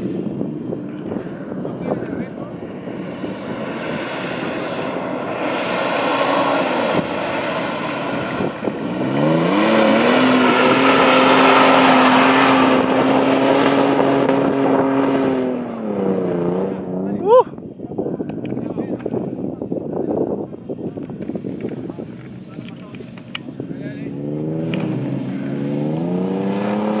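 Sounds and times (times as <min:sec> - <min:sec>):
suv engine revving in sand: 0:02.7 - 0:17.2, 0:23.7 - 0:27.0.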